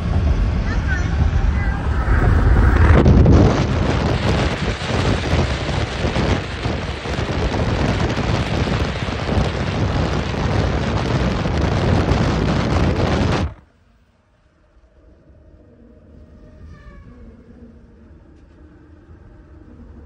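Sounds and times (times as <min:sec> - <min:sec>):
wind noise on microphone: 0:00.0 - 0:13.7.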